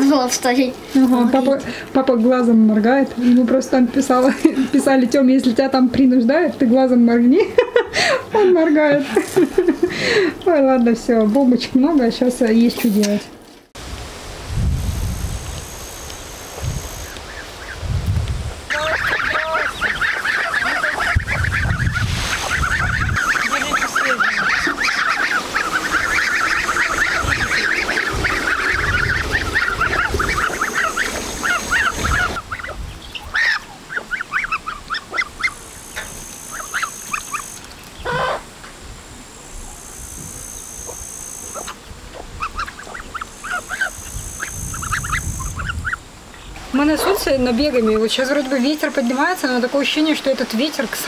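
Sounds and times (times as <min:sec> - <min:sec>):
geese calling: 0:15.0 - 0:17.9, 0:18.6 - 0:50.2.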